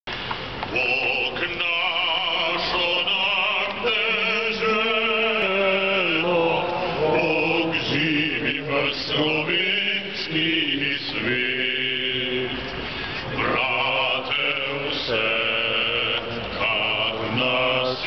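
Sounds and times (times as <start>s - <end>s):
person singing over loudspeakers: 0.6s - 18.0s.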